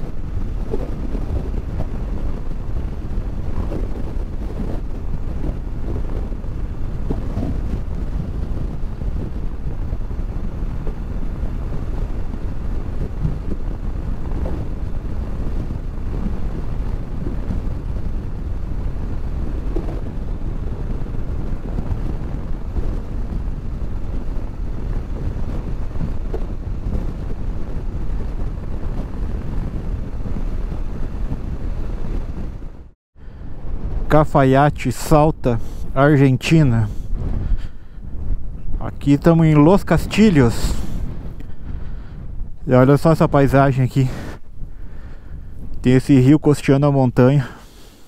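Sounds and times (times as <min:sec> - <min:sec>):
motorcycle engine running low: 0:00.0 - 0:33.0
wind rushing over microphone: 0:00.0 - 0:48.0.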